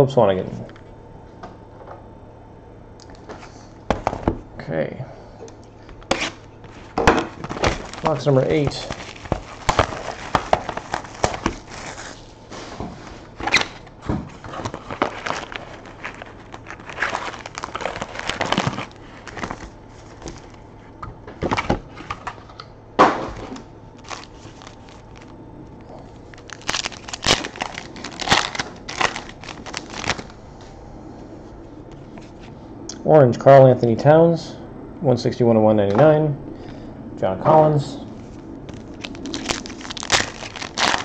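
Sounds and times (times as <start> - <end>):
plastic wrap crinkling and tearing: 6.1 - 20.6, 24.0 - 30.4, 38.7 - 41.0.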